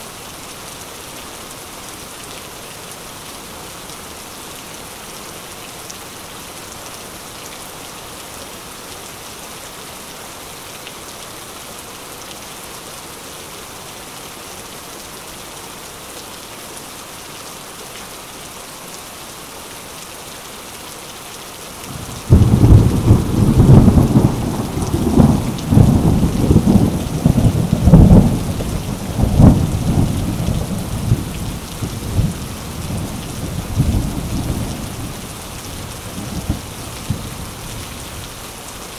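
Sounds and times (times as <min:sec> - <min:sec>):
steady rain: 0:00.0 - 0:38.9
thunder rumbling: 0:21.9 - 0:37.4.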